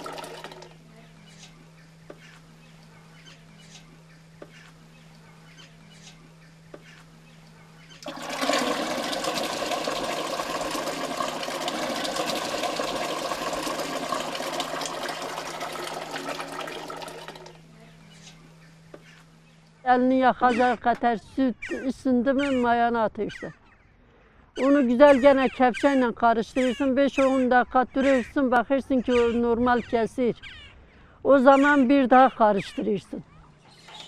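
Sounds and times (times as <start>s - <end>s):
milk pouring and splashing: 0.0s - 0.7s, 8.0s - 17.6s.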